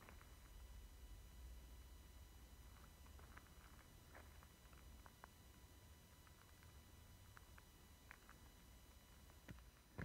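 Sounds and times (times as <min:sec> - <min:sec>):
faint low rumble: 0:00.0 - 0:10.0.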